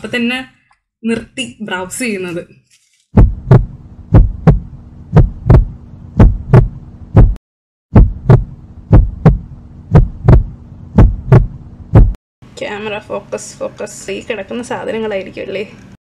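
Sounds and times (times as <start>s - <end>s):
steady hum: 3.2s - 7.4s, 8.0s - 13.3s
heartbeat thumps: 3.2s - 12.2s.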